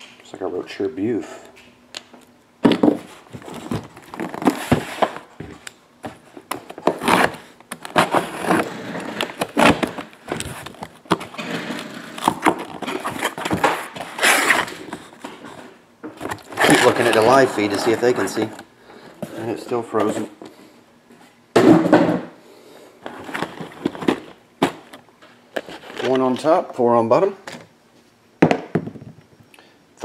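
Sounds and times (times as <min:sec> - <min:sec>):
boxes clicking and knocking: 0:02.6 - 0:18.6
cardboard tearing and rustling: 0:02.7 - 0:18.5.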